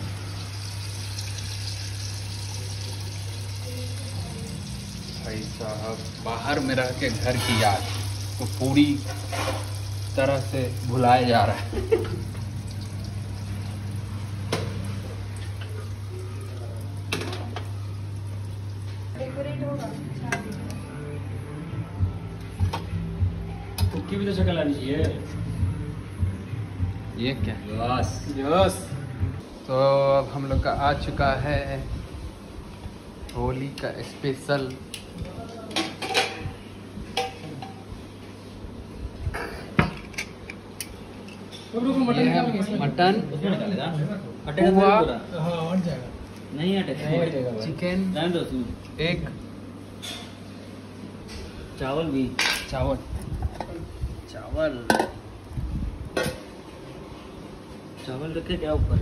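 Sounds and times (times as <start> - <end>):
hot oil bubbling and sizzling: 0.0 - 19.2
steady low hum: 0.0 - 33.4.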